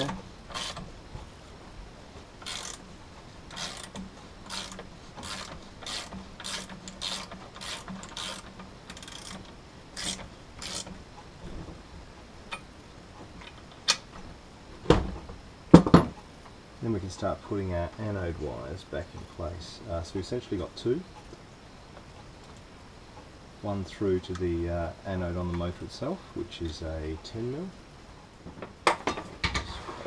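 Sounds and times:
ratchet wrench clicking: 0:00.0 - 0:00.8, 0:02.4 - 0:02.9, 0:03.5 - 0:11.0.

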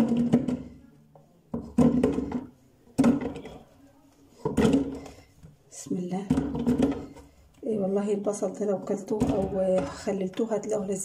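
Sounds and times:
onions knocking into plastic jar: 0:00.0 - 0:00.8, 0:01.5 - 0:03.6, 0:06.2 - 0:07.4.

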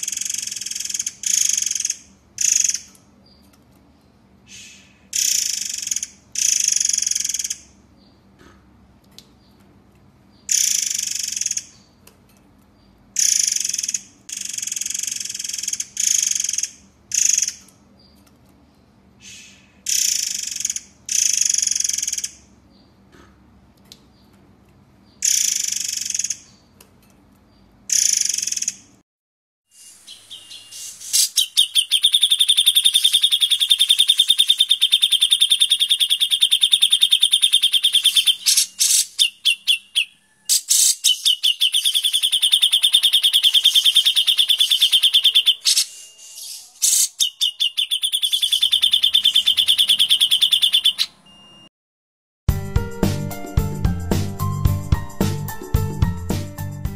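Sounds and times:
rapid buzzing bird trill: 0:00.0 - 0:02.9, 0:04.5 - 0:07.8, 0:10.4 - 0:11.9, 0:13.2 - 0:17.6, 0:19.2 - 0:22.5, 0:25.2 - 0:26.5, 0:27.9 - 0:29.0, 0:29.8 - 0:51.2
harsh scratchy bird calls: 0:00.0 - 0:03.4, 0:04.5 - 0:07.6, 0:10.4 - 0:12.0, 0:13.2 - 0:18.2, 0:19.2 - 0:22.4, 0:25.2 - 0:26.6, 0:29.7 - 0:51.2.

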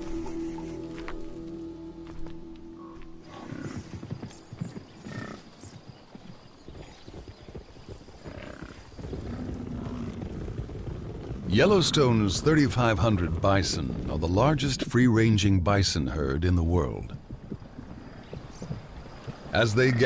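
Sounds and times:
hoofbeats thudding: 0:02.2 - 0:15.0, 0:17.0 - 0:20.0.

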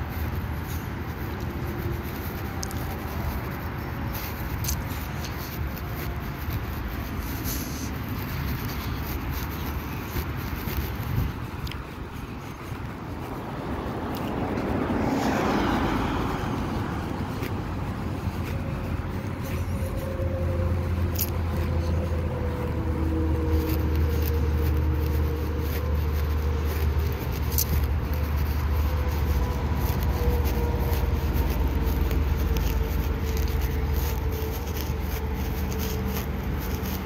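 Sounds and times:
car passing: 0:00.0 - 0:37.0
vehicle engine drone: 0:00.0 - 0:37.0.

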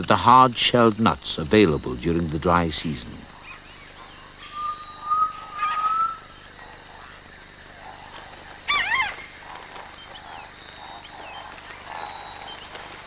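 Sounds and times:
bird whistled note: 0:04.4 - 0:06.3
bird call with wavering pitch: 0:04.4 - 0:06.4.

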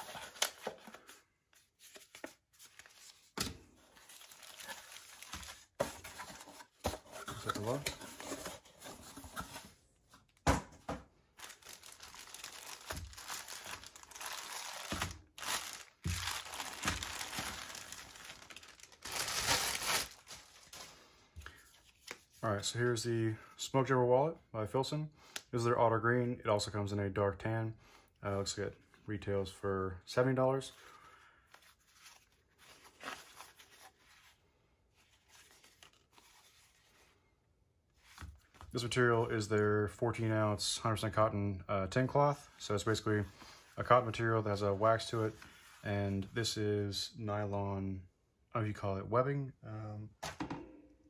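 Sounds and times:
plastic bag crinkling: 0:04.1 - 0:05.8, 0:11.4 - 0:21.0.

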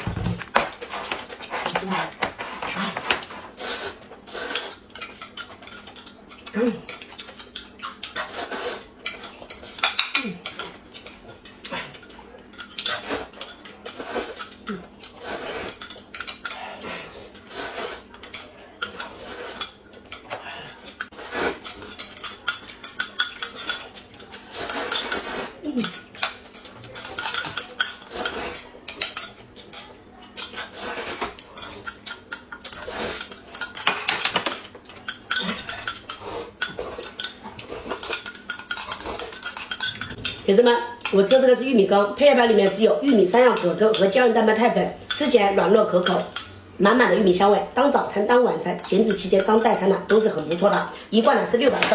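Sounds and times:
slurping noodles and soup: 0:02.8 - 0:04.8, 0:08.1 - 0:09.0, 0:13.9 - 0:14.4, 0:15.1 - 0:15.8, 0:16.6 - 0:18.1, 0:20.7 - 0:21.8, 0:24.4 - 0:25.6, 0:30.6 - 0:31.8, 0:32.8 - 0:33.3.

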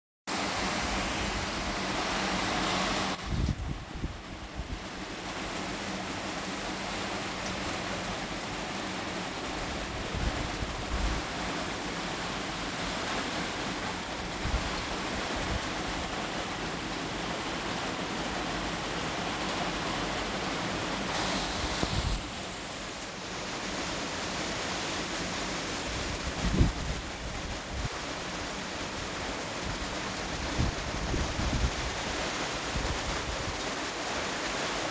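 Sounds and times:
heavy rain pouring: 0:00.3 - 0:34.9
wind gusts on microphone: 0:00.5 - 0:05.0, 0:09.6 - 0:11.3, 0:14.3 - 0:16.1, 0:21.1 - 0:22.6, 0:25.8 - 0:28.1, 0:29.6 - 0:33.6.

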